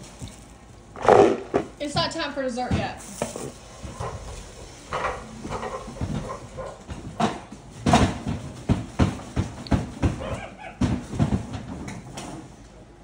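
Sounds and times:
sharp knocks and thumps: 2.6 - 12.4
monkey making short calls: 10.2 - 10.8.

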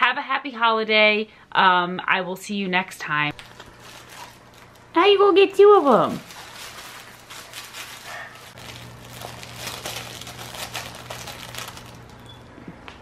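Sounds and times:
low steady hum: 0.0 - 13.0
crinkly plastic rustling: 3.3 - 12.4.

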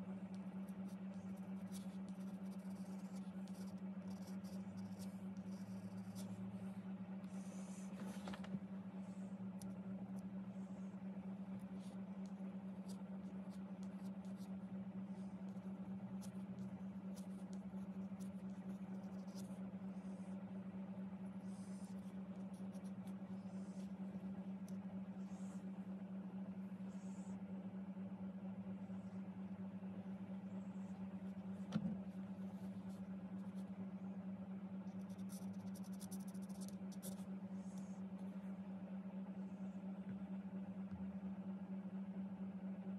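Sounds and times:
low hum: 0.0 - 42.9
pencil scratching on card: 0.5 - 8.3, 10.6 - 20.4, 21.3 - 25.6, 34.8 - 38.0.

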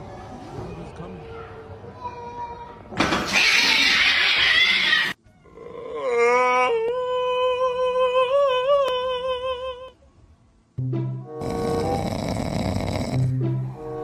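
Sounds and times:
cat hissing: 3.2 - 5.2
cat yowling: 3.3 - 7.5.

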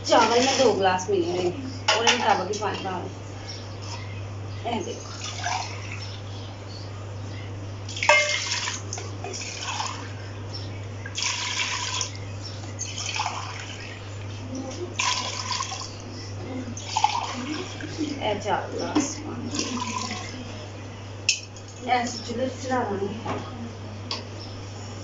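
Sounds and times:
water splashing into metal pot: 7.9 - 10.1, 11.1 - 12.2, 12.9 - 14.0.

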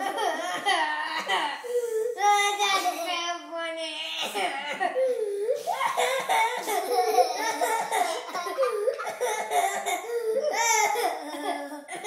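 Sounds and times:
young child laughing: 5.6 - 10.0.

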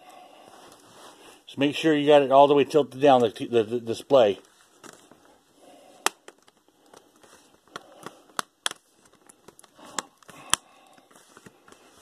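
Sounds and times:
plastic clips snapping: 7.7 - 10.7.

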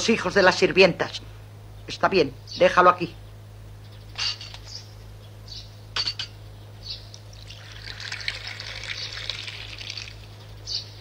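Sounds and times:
coffee pouring into cup: 7.1 - 10.5.

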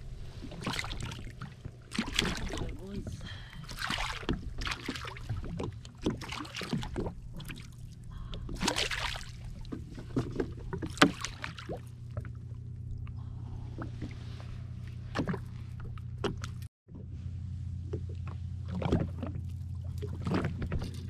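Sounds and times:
steady low hum: 0.0 - 21.0
fish splashing in water: 0.5 - 3.0, 3.6 - 11.9.

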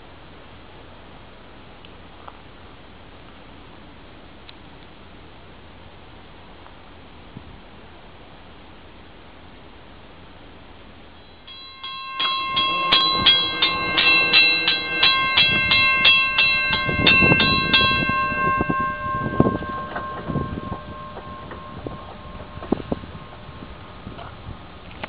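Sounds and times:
crossing warning bell ringing: 11.2 - 25.0
low thumps: 11.5 - 24.7.

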